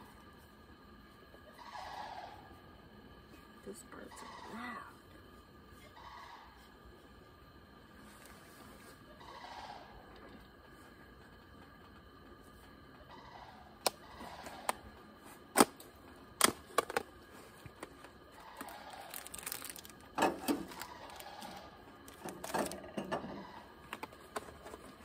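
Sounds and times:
plastic container crinkling: 18.6 - 22.9.

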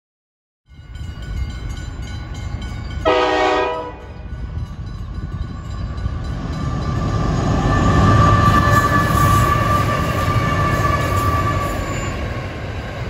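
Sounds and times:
train engine and wheel noise: 0.7 - 13.0
train horn: 3.0 - 4.2.

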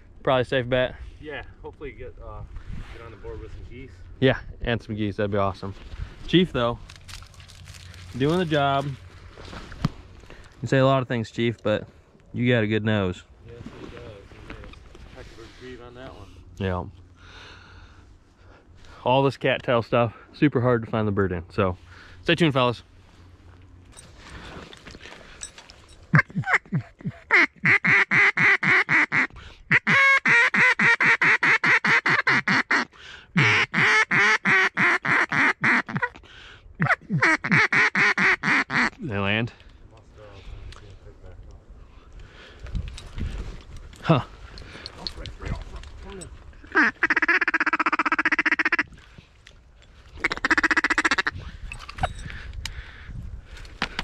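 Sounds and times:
duck call quacks: 26.1 - 36.2, 36.8 - 39.0, 46.6 - 48.9, 50.2 - 51.4.

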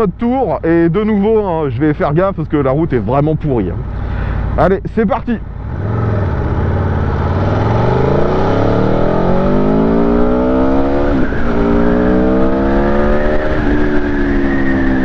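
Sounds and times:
motorcycle engine accelerating: 5.5 - 15.0.

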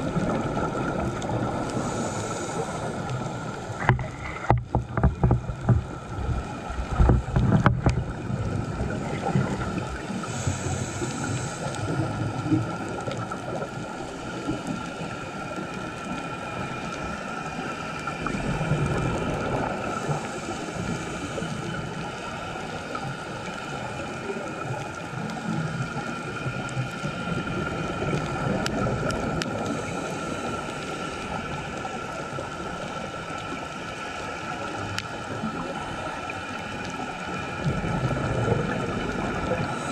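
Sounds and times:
underwater hiss: 0.1 - 4.5, 8.1 - 39.9
scuba regulator breathing: 1.4 - 4.5, 8.9 - 12.6, 19.2 - 22.8, 29.4 - 31.8, 39.5 - 39.9.

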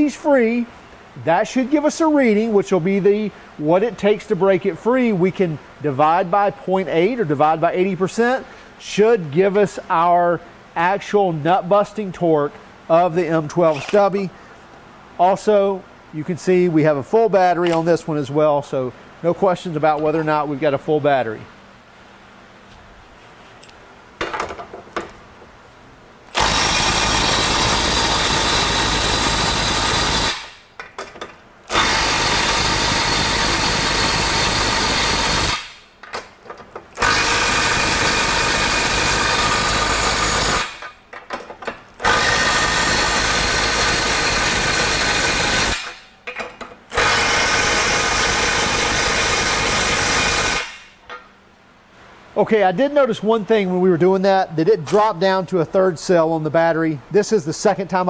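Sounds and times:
impact wrench hammering nuts: 26.3 - 51.3.

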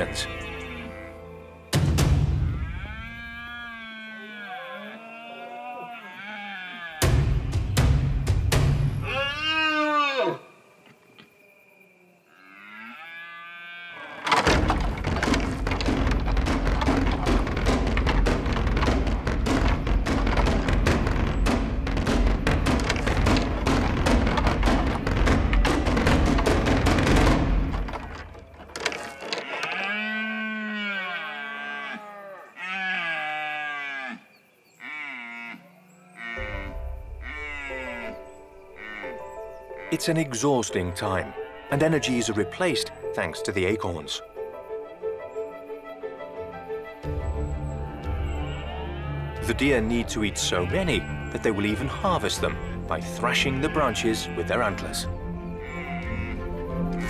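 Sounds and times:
low background music: 0.0 - 3.6, 7.0 - 9.6, 14.3 - 28.6, 36.1 - 57.0
deer stags bellowing: 9.0 - 10.5
knocking and rustling: 14.2 - 29.9.

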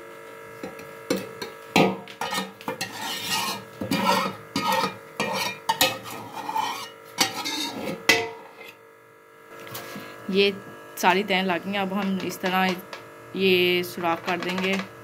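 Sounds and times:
spoon scraping metal pot: 1.2 - 8.8.

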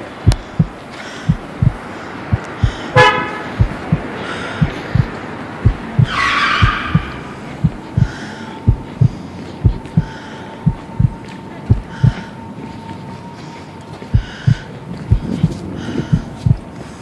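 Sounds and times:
heartbeat thumping: 0.0 - 12.3, 14.1 - 16.7
street traffic: 0.0 - 17.0
car horn honk: 2.9 - 3.6, 6.1 - 7.3.

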